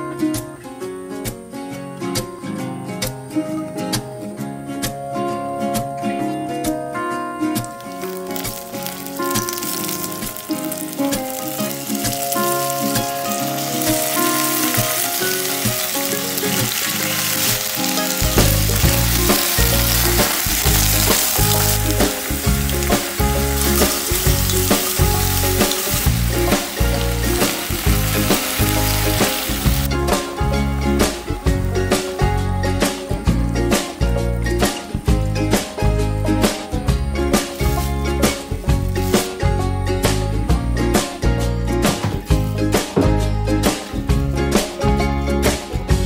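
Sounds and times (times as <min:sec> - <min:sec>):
background music: 0:00.0 - 0:46.0
steady music beat: 0:06.7 - 0:45.0
oil sizzling in a pot: 0:07.6 - 0:40.2
meat sizzling while stir-fried: 0:07.8 - 0:33.9, 0:36.7 - 0:40.2.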